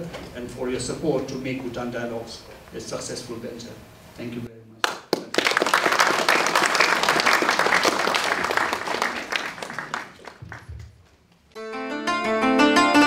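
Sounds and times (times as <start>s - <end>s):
audience clapping: 4.8s - 11.4s
plucked string instrument music: 11.6s - 13.0s.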